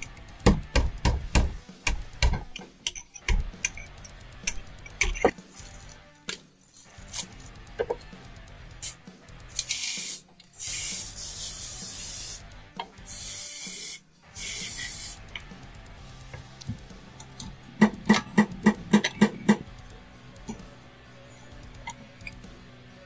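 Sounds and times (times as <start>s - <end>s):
aerosol can spraying: 8.8s - 15.3s.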